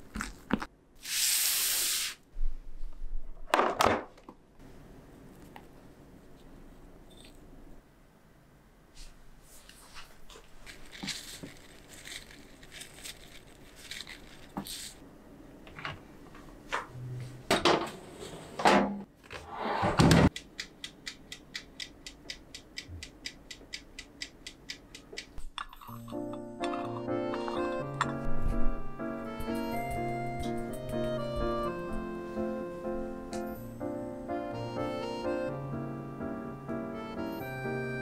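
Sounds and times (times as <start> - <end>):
oven dial timer ticking: 20.3 - 25.4.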